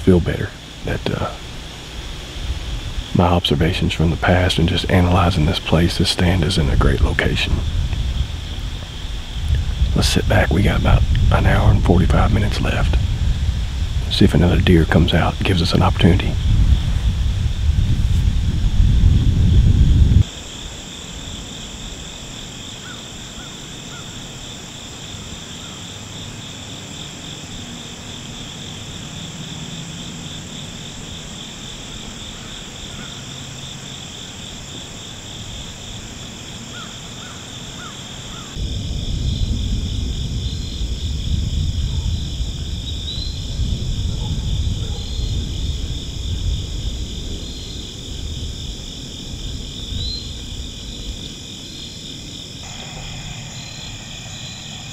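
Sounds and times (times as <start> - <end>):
wind rumble on microphone: 0.0 - 20.3, 38.5 - 54.9
insects trilling: 0.0 - 54.9.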